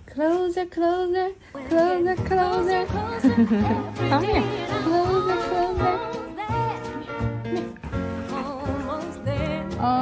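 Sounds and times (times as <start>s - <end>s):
person singing with vibrato: 0.0s - 7.3s
background music with bass line: 1.8s - 10.0s.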